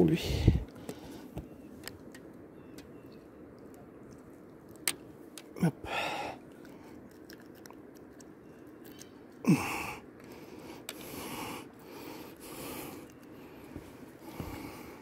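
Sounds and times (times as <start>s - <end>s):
breathing: 0.4s - 1.4s, 5.9s - 7.0s, 9.5s - 15.0s.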